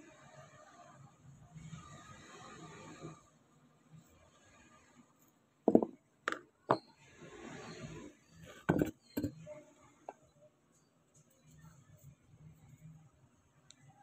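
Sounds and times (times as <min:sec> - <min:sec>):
metal parts knocking on workbench: 0:05.7 - 0:06.9, 0:08.5 - 0:09.4.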